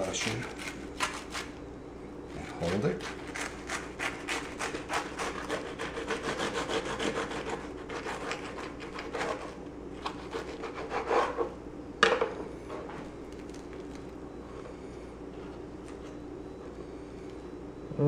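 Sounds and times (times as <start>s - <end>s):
knife sawing through toast: 2.4s - 11.5s.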